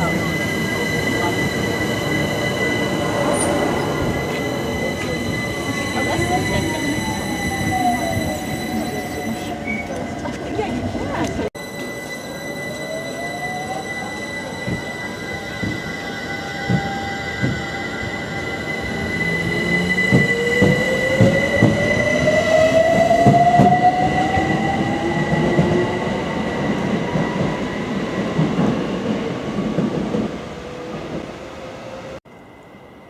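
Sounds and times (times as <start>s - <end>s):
constant high tone: 11.6s - 20.7s.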